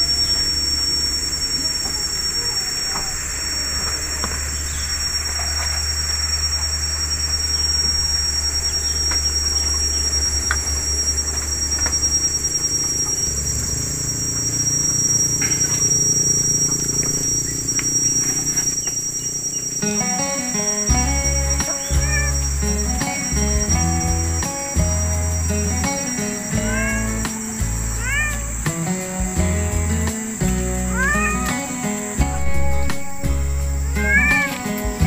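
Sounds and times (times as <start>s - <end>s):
insects buzzing: 0.0s - 35.0s
music: 19.8s - 35.0s.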